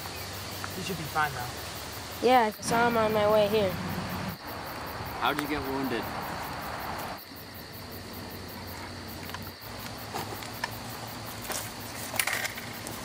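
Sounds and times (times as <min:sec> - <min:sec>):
insects trilling and pulsing: 0:00.0 - 0:13.0.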